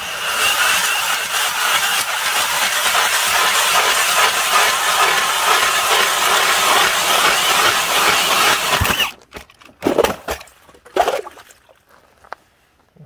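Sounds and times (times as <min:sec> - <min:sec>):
ice auger drilling: 0:00.0 - 0:09.2.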